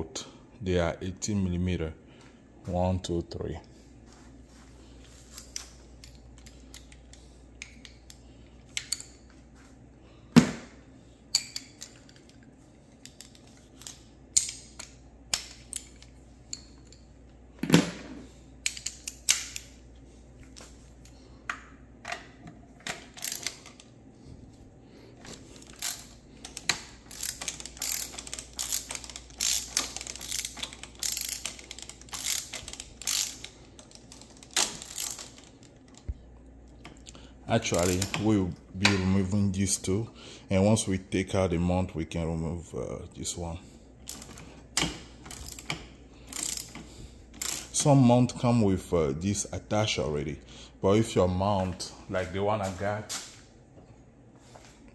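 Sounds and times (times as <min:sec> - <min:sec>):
ratchet wrench clicking: 0:23.1 - 0:23.8, 0:25.6 - 0:35.6, 0:37.7 - 0:38.2, 0:44.1 - 0:47.8.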